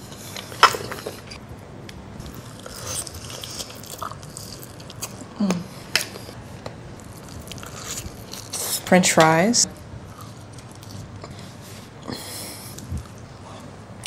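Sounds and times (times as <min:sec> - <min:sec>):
person chewing crispy food: 0:00.1 - 0:08.8, 0:10.0 - 0:13.7
person humming: 0:05.4 - 0:05.7.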